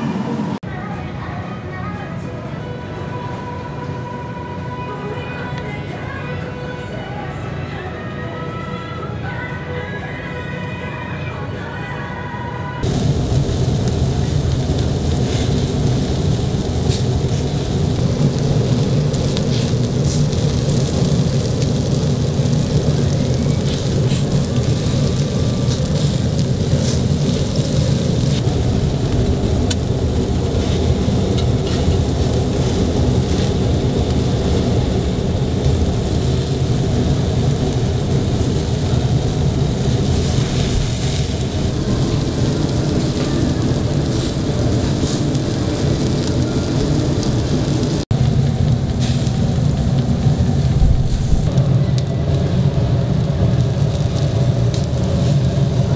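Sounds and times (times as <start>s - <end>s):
fat crackling and popping: 12.8s - 55.9s
low rumble: 12.8s - 55.9s
meat sizzling on charcoal grill: 12.8s - 55.9s.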